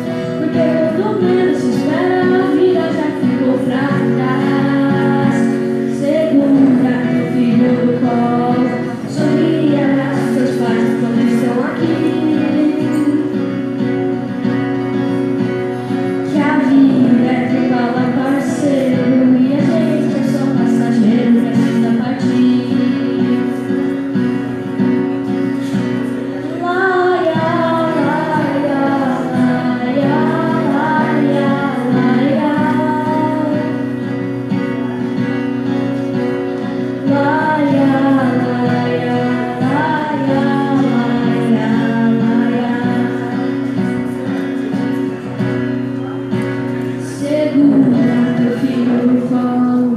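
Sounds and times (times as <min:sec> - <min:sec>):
child singing slow song: 0:00.0 - 0:13.5, 0:16.2 - 0:23.7, 0:26.4 - 0:33.9, 0:37.0 - 0:44.2, 0:47.0 - 0:49.9
instrumental backing music: 0:00.0 - 0:49.9.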